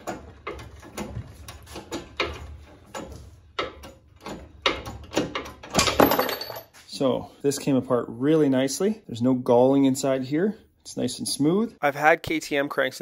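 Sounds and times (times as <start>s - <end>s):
metal clicks and clunks: 0.0s - 6.7s.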